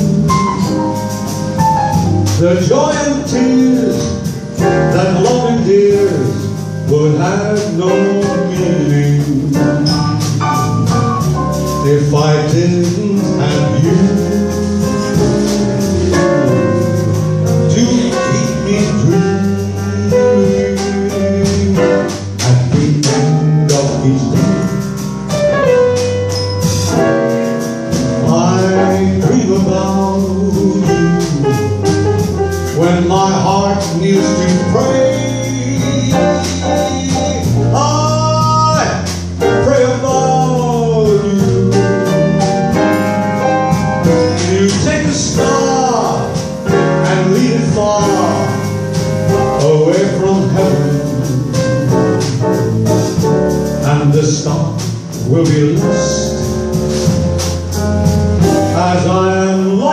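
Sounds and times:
band playing a bolero: 0:00.0 - 0:59.9
man singing into microphone: 0:02.3 - 0:10.4, 0:11.8 - 0:16.9, 0:17.7 - 0:24.7, 0:28.2 - 0:31.8, 0:32.8 - 0:42.7, 0:44.2 - 0:48.7, 0:49.5 - 0:52.8, 0:53.8 - 0:56.5, 0:58.6 - 0:59.9.

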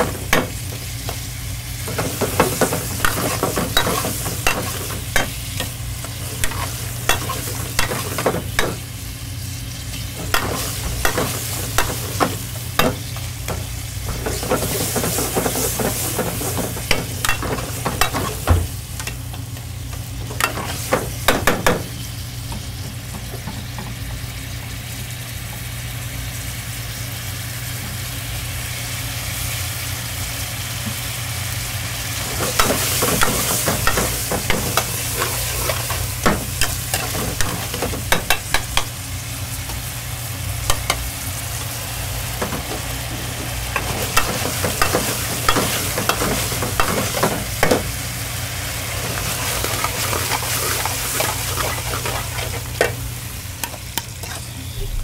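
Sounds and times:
food sizzling in wok: 0:00.0 - 0:55.0
metal ladle scraping wok: 0:54.0 - 0:55.0.

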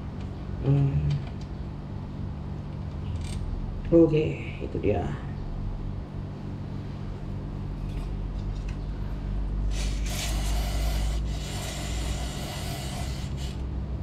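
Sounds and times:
steady low hum: 0:00.0 - 0:14.0
aerosol spray hissing: 0:09.7 - 0:13.6.

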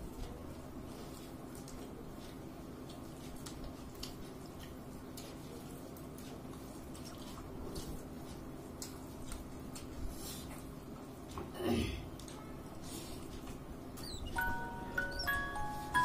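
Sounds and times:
chewing and smacking: 0:00.1 - 0:11.4.

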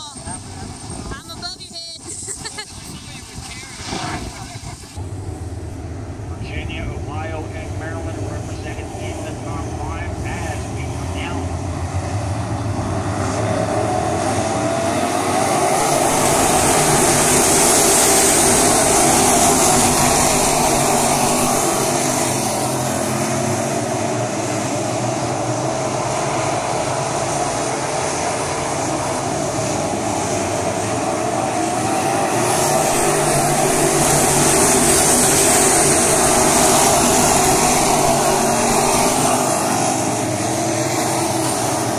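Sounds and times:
race car engines roaring: 0:00.0 - 0:41.9.

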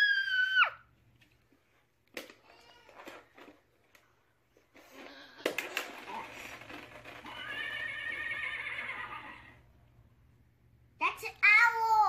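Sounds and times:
recorded horse whinny: 0:07.3 - 0:09.6.

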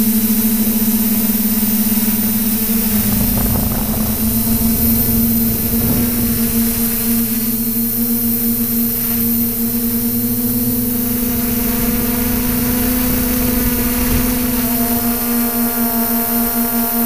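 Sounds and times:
drone propellers humming: 0:00.0 - 0:17.0
higher tones: 0:02.4 - 0:08.5.

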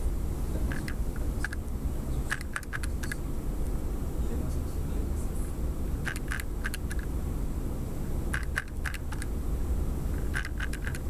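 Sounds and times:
steady low hum: 0:00.0 - 0:11.0
small sharp clicks: 0:02.3 - 0:03.2, 0:06.1 - 0:07.1, 0:08.3 - 0:09.3, 0:10.2 - 0:11.0.

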